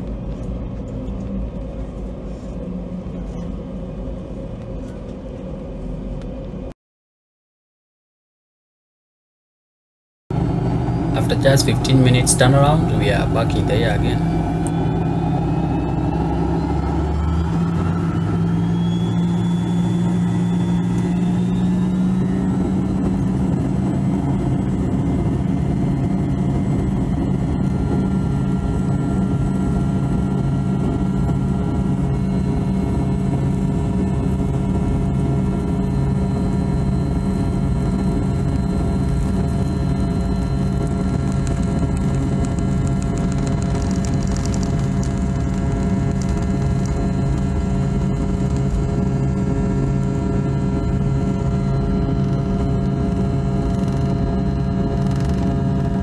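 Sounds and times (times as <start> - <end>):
jet engines humming: 10.3 - 56.0.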